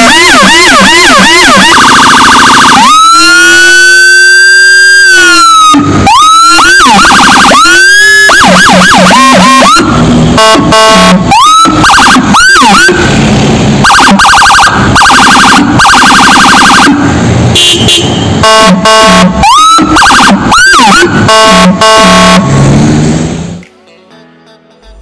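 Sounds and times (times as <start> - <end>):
electronic siren: 0.0 - 13.2, 13.8 - 17.7, 18.4 - 22.7
low-frequency siren: 0.0 - 17.2, 18.4 - 22.8.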